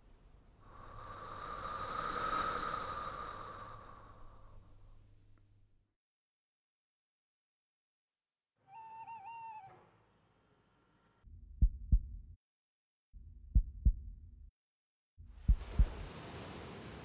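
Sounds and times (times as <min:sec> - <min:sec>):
heartbeat thumps: 0:11.3 - 0:12.4, 0:13.2 - 0:14.4, 0:15.3 - 0:16.1
low rumble: 0:11.3 - 0:12.4, 0:15.3 - 0:16.1.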